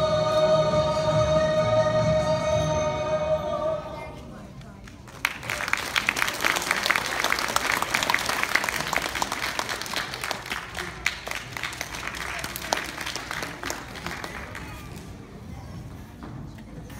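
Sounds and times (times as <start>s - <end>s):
audience applauding: 5.1s - 14.9s.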